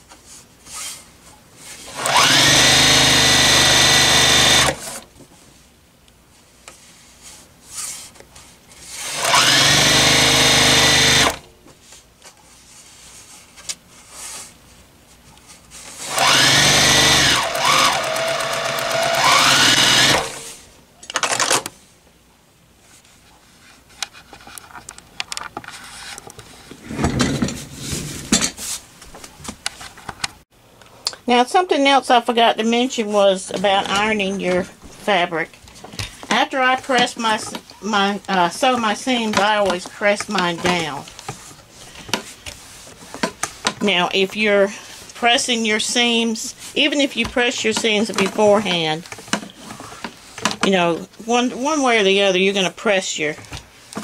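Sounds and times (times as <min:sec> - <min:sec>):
sewing machine stitching: 0:01.9 - 0:05.0, 0:09.0 - 0:11.4, 0:16.0 - 0:20.5.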